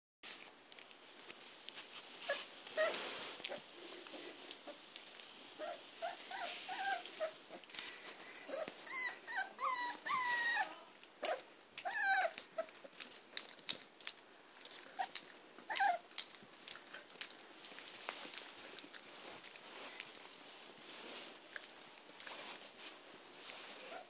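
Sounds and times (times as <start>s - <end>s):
puppies whining and yipping: 5.6s - 7.6s, 8.2s - 12.9s, 14.8s - 16.1s.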